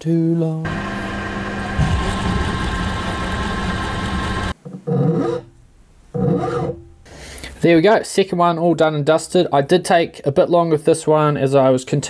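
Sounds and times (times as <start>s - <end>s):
milling machine cutting steel: 0.7s - 4.6s.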